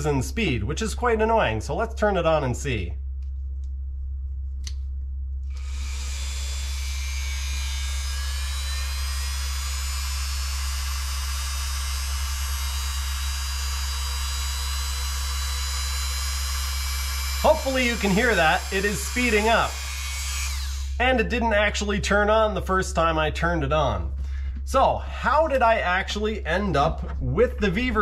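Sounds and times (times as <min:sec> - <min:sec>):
rotary tool motor whirring: 0:05.5 - 0:21.0.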